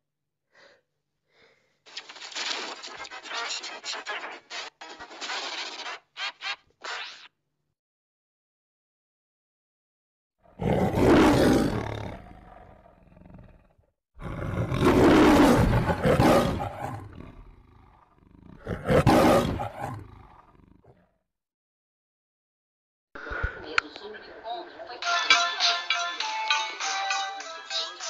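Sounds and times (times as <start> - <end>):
lion roaring: 10.5 - 21.1.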